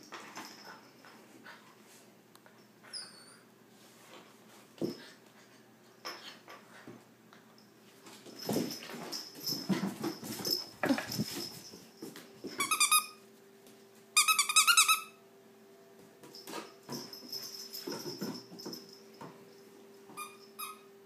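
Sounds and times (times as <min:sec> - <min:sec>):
puppy scuffling: 0:07.9 - 0:14.4.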